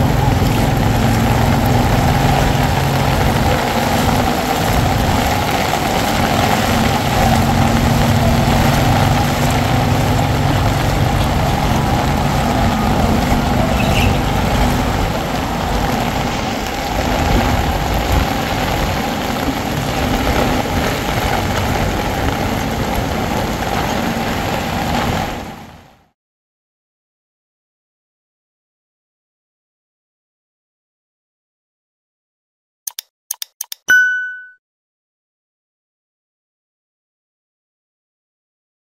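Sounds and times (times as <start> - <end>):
engine running: 0.0 - 25.7
heavy rain pouring: 0.0 - 26.1.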